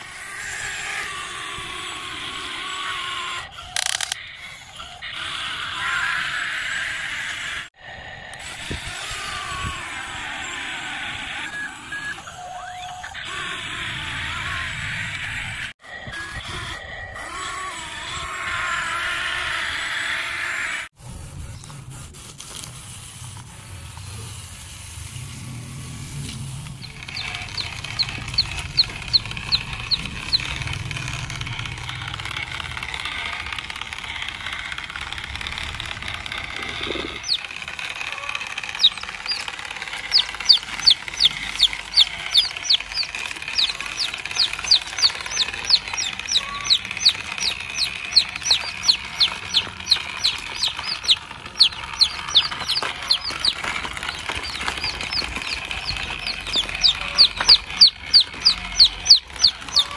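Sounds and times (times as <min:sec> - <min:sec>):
baby chicks peeping: 0:00.1 - 0:20.8, 0:25.1 - 0:59.9.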